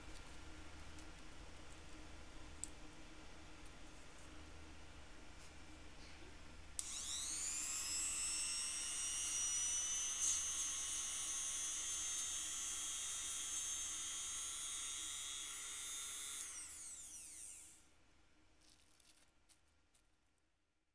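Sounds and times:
rotary tool high whine: 6.8 - 17.9.

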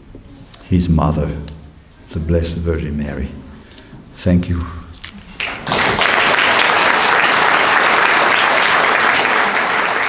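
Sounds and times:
audience applauding: 5.3 - 10.0.

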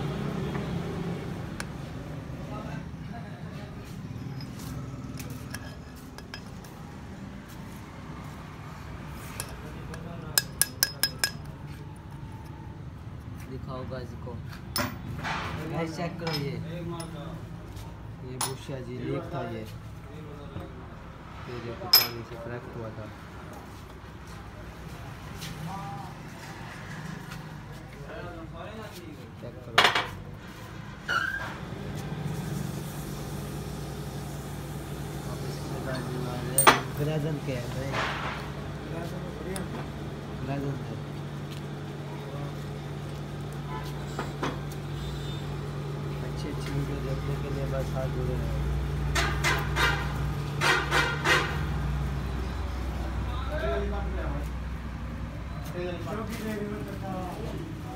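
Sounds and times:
metal tool clinking: 4.2 - 6.7, 9.3 - 11.6, 16.2 - 17.2, 21.9 - 22.3, 35.9 - 37.0.

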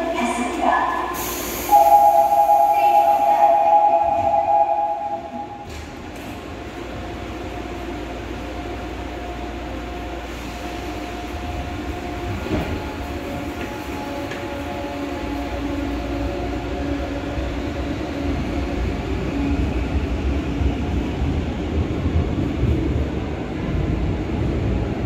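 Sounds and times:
subway train motors rumbling: 0.0 - 25.0
two-tone warning signal: 1.7 - 5.7.

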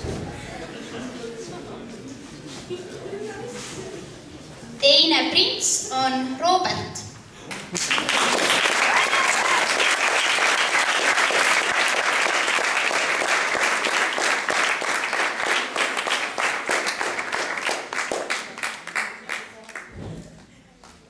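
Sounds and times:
audience applauding: 7.5 - 19.9.

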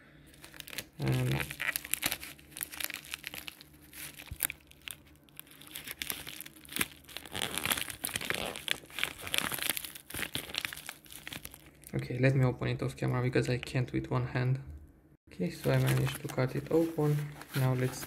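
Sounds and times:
envelope crinkling and rustling: 0.3 - 11.9, 15.5 - 18.0.

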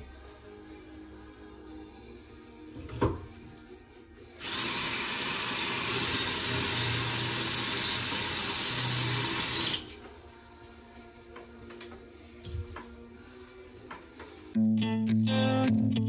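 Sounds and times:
cordless drill boring into wall: 4.4 - 10.0.

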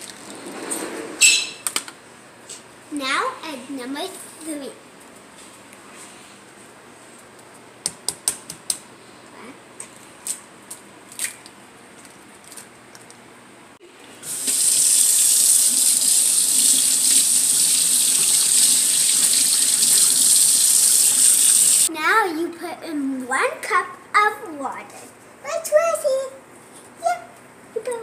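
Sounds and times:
tap water running into sink: 14.2 - 21.9.

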